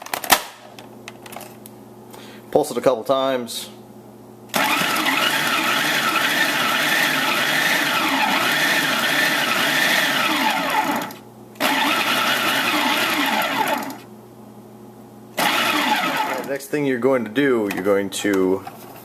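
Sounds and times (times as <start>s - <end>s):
food processor chopping: 4.6s - 14.0s, 15.4s - 16.5s.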